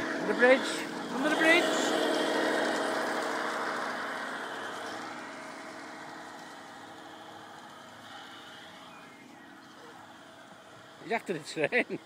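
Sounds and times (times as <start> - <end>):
train wheels on rails: 0.0 - 8.9
model train motor humming: 0.0 - 12.0.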